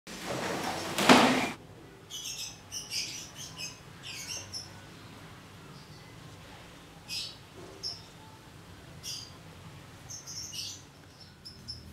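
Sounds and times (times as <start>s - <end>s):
leather hide flapping onto floor: 0.1s - 1.6s.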